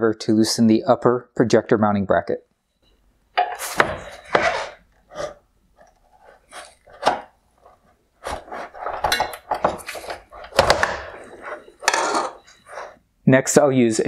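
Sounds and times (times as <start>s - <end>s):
screwdriver scraping plastic: 4.4s - 7.2s.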